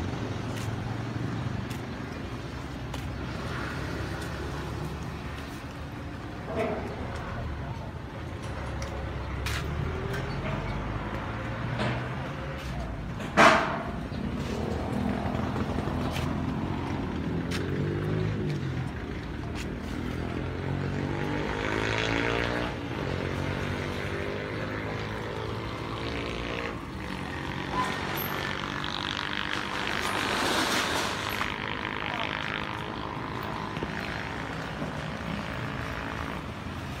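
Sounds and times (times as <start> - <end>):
small motorcycle engines passing: 14.2 - 37.0.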